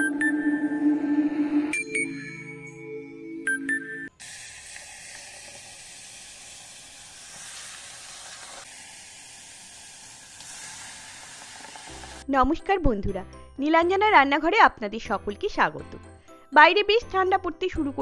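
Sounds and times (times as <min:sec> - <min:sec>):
tea sizzling in hot clay cup: 0:04.2 - 0:12.2.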